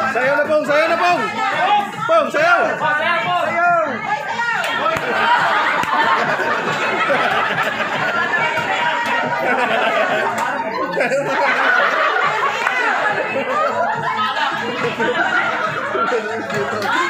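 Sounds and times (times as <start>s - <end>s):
crowd talking: 0.0s - 17.0s
people laughing: 4.7s - 17.0s.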